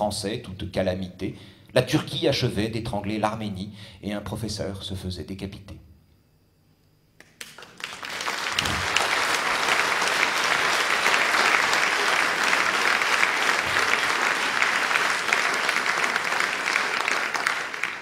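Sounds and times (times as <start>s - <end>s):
audience clapping: 7.2s - 18.0s.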